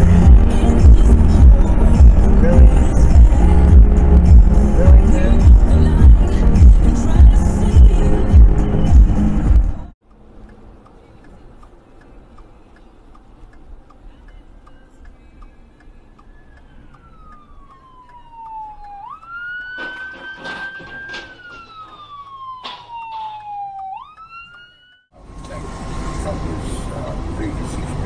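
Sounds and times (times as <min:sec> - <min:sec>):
road noise: 0:00.0 - 0:28.0
police siren wailing: 0:16.0 - 0:25.1
car crash impacts: 0:19.7 - 0:23.5.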